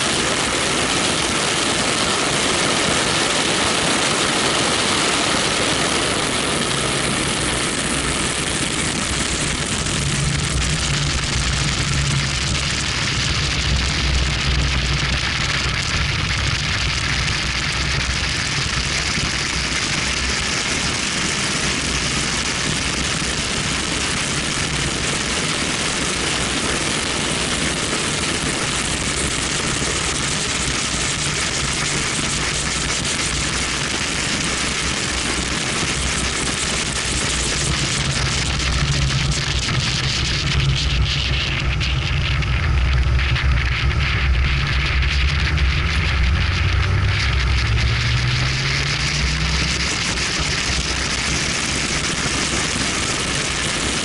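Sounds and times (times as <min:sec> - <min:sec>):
wind rushing over microphone: 0:00.0 - 0:54.0
car engine: 0:30.2 - 0:54.0.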